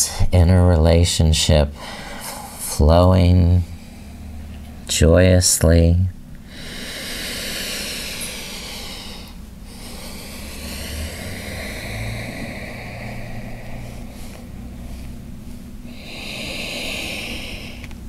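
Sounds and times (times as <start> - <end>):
person breathing slowly: 1.7 - 2.7, 6.4 - 18.0.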